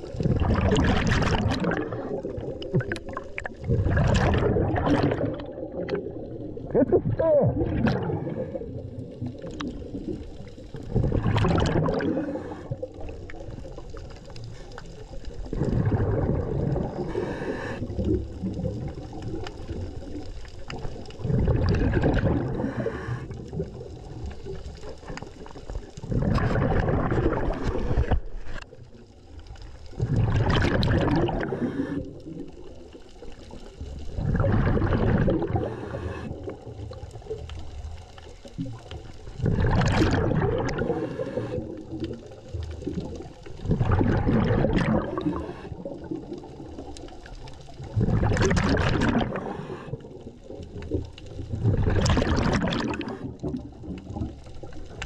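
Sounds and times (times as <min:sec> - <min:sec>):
bubbling exhaled air underwater: 0:00.0 - 0:55.0
diver inhaling through regulator: 0:11.9 - 0:13.0, 0:16.8 - 0:18.1, 0:22.4 - 0:23.4, 0:31.2 - 0:32.2, 0:35.1 - 0:36.6, 0:40.8 - 0:41.8, 0:45.1 - 0:46.0, 0:49.2 - 0:50.2.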